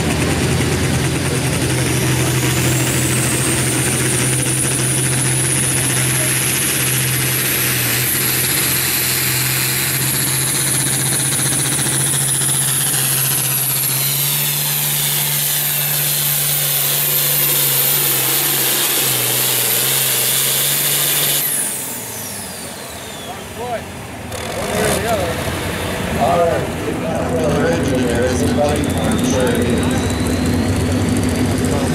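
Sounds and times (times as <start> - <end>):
tractor diesel engine under load: 0.0 - 31.9
high whine: 25.0 - 31.9.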